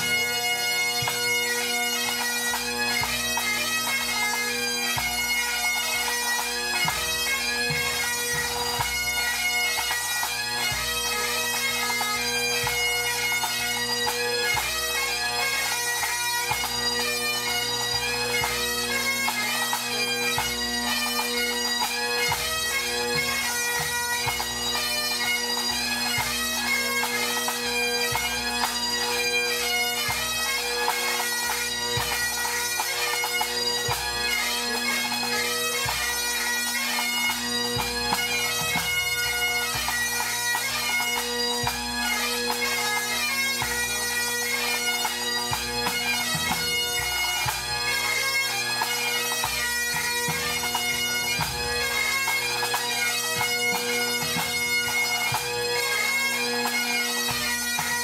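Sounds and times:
bagpipes playing melody with drones: 0:00.0 - 0:58.0
pipe band drums beating: 0:00.0 - 0:58.0.

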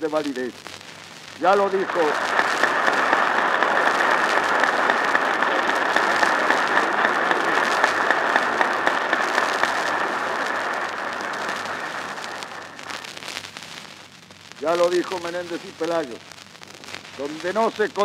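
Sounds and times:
audience applauding: 0:01.4 - 0:13.2.

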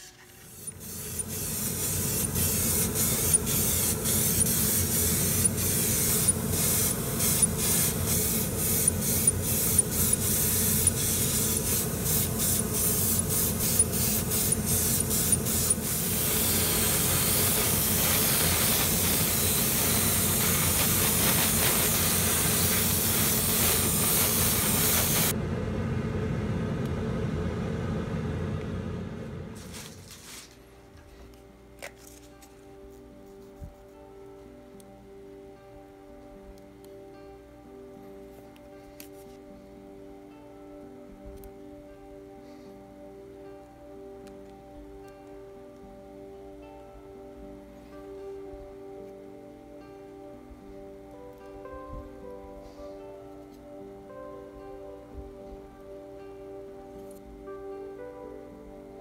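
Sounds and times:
airbrush spraying hiss: 0:00.0 - 0:25.4
low hum: 0:00.9 - 0:30.0.

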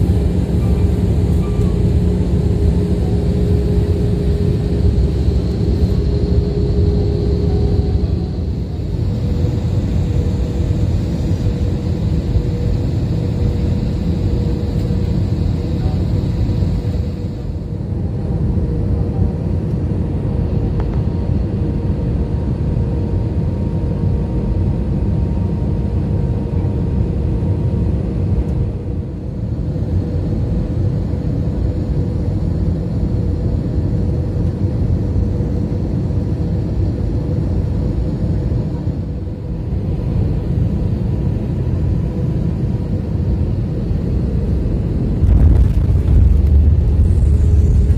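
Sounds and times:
aircraft engines droning: 0:00.0 - 0:47.9
steady hum: 0:00.0 - 0:47.9
rushing air: 0:44.7 - 0:47.9.

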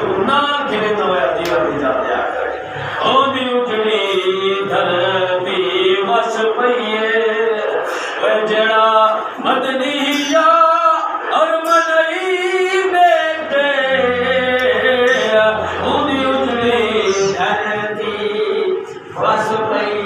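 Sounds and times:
man chanting melody: 0:00.0 - 0:20.0
low steady hum: 0:13.2 - 0:20.0.

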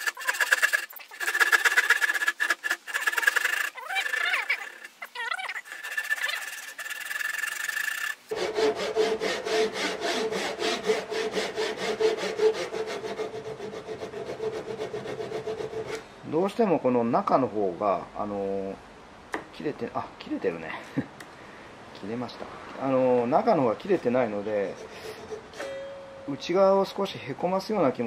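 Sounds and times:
hand saw cutting wood: 0:00.0 - 0:05.0, 0:05.6 - 0:16.1, 0:23.9 - 0:25.8.

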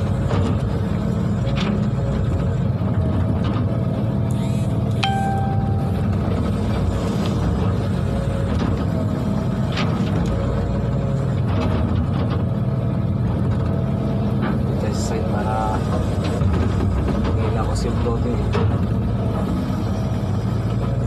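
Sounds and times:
excavator diesel engine: 0:00.0 - 0:21.0
short pitched tone: 0:05.0 - 0:06.8.

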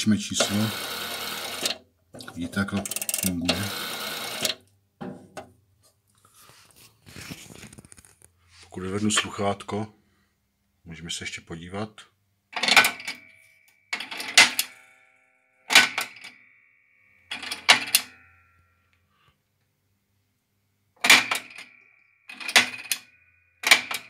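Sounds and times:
payphone coin mechanism clattering: 0:00.4 - 0:01.8, 0:02.4 - 0:04.6, 0:12.6 - 0:13.3, 0:13.9 - 0:14.8, 0:15.7 - 0:16.4, 0:17.3 - 0:18.2, 0:21.0 - 0:24.0.

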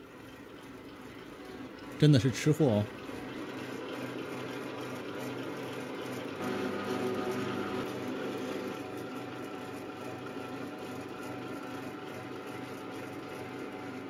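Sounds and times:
meat slicing machine humming: 0:00.0 - 0:14.0.

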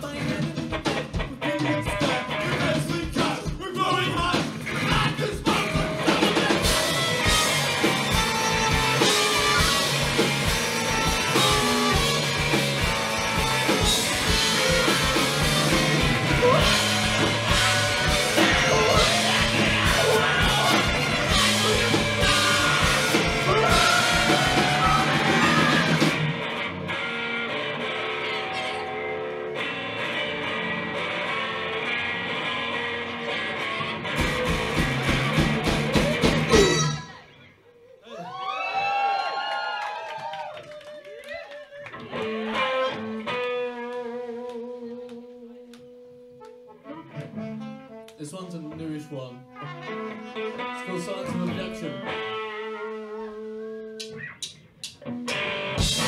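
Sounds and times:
bass guitar: 0:00.0 - 0:37.2, 0:41.9 - 0:56.0
drums: 0:00.0 - 0:37.3, 0:49.8 - 0:56.0
electric guitar: 0:00.0 - 0:37.5, 0:41.2 - 0:56.0
saxophone: 0:05.9 - 0:26.2, 0:42.8 - 0:54.2
trumpet: 0:16.4 - 0:25.9.

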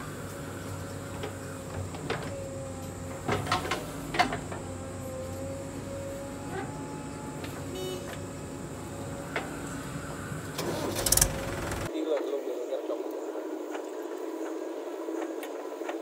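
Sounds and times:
backhoe loader engine whining: 0:00.0 - 0:11.9
tractor idling: 0:00.0 - 0:11.9.

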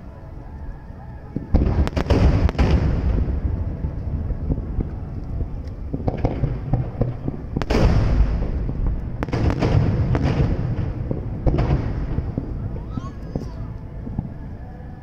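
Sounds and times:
continuous low rumble: 0:00.0 - 0:15.0
firework shells booming: 0:01.5 - 0:03.5, 0:04.4 - 0:14.3.

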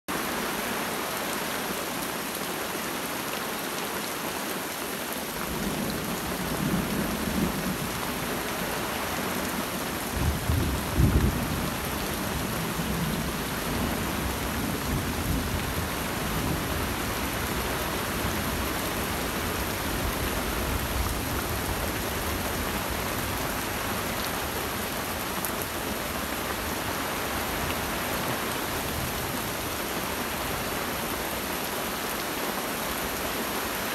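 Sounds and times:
steady rain in forest: 0:00.1 - 0:33.9
thunder rumbling: 0:10.1 - 0:18.7.

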